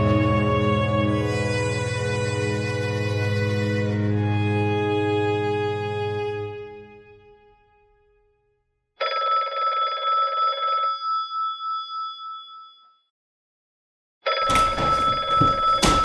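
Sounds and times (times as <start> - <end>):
telephone bell ringing: 9.0 - 13.1, 14.3 - 16.0.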